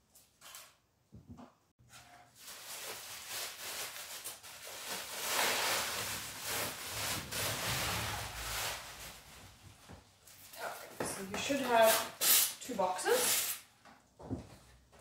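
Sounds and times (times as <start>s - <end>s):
bubble wrap rustling and crinkling: 2.0s - 10.9s.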